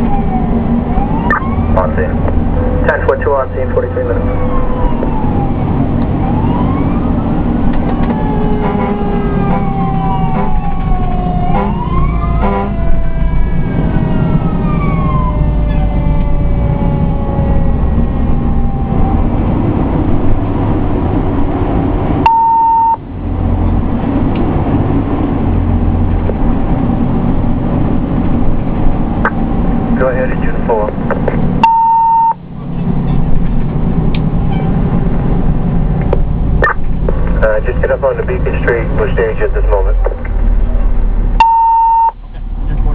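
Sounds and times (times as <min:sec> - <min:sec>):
fire engine rumble: 0:00.0 - 0:42.9
fire engine sirens wailing: 0:00.0 - 0:42.9
short steady beep: 0:22.2 - 0:23.0, 0:31.6 - 0:32.4, 0:41.4 - 0:42.2.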